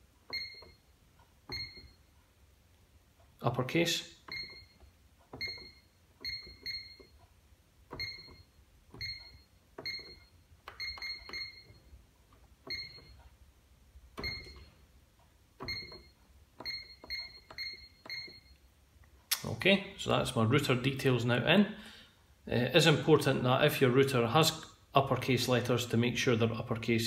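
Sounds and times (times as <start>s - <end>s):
keypad beeps: 0.3s - 0.9s, 1.5s - 2.1s, 4.2s - 7.2s, 7.9s - 12.0s, 12.6s - 13.3s, 14.2s - 14.8s, 15.6s - 18.7s
key press clicks: 4.2s - 7.2s, 7.8s - 11.8s, 14.1s - 14.7s, 15.6s - 18.6s.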